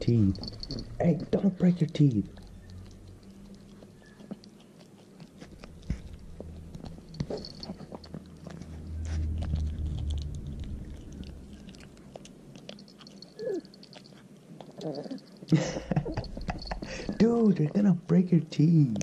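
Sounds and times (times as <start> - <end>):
dog chewing and crunching bones: 0.0 - 17.9
low rumble: 5.9 - 12.6.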